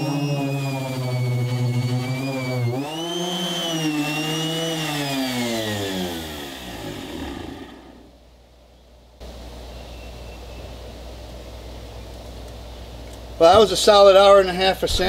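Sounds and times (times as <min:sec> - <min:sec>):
orbital sander whining: 0:00.0 - 0:08.2.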